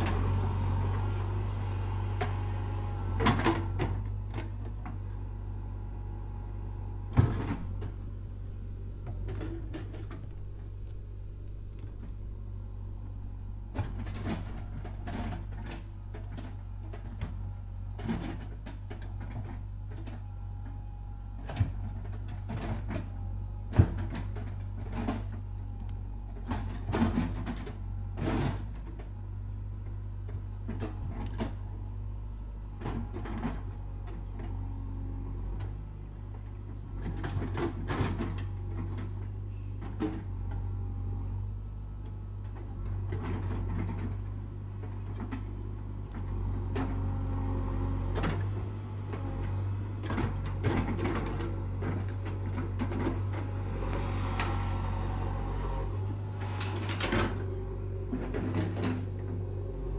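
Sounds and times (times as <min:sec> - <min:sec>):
diesel engine running: 0:00.0 - 0:59.9
backhoe bucket knocks and clunks: 0:07.1 - 0:08.0, 0:13.6 - 0:20.2, 0:21.3 - 0:25.5, 0:26.2 - 0:29.2, 0:35.5 - 0:40.7, 0:49.9 - 0:53.5, 0:56.1 - 0:59.9.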